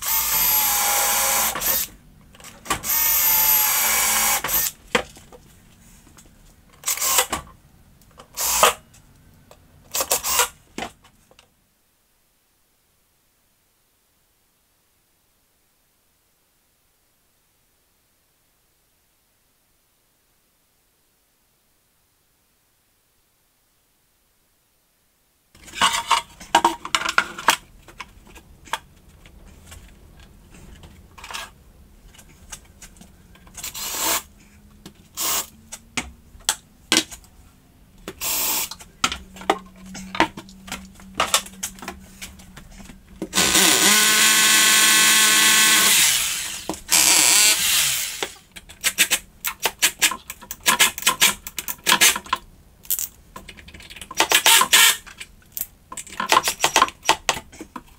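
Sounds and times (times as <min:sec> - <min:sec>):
cordless drill running: 0:00.0 - 0:01.9, 0:02.8 - 0:04.8, 0:06.8 - 0:07.3, 0:08.4 - 0:08.8, 0:10.0 - 0:10.5, 0:33.6 - 0:34.3, 0:35.2 - 0:35.5, 0:38.2 - 0:38.7, 0:43.3 - 0:48.4.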